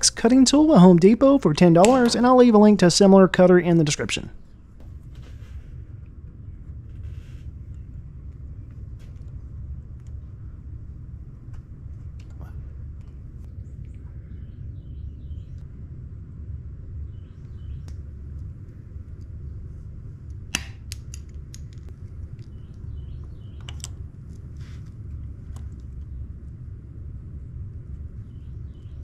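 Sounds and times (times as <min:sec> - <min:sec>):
steady low rumble: 0:00.0 - 0:29.0
faint bird chirps: 0:13.6 - 0:15.6, 0:17.0 - 0:17.9.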